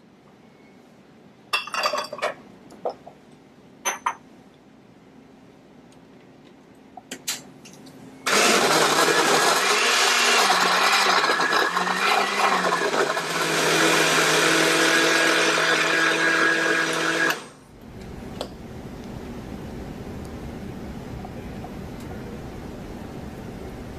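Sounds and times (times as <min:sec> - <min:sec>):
blender crushing ice: 0:08.3 - 0:17.6.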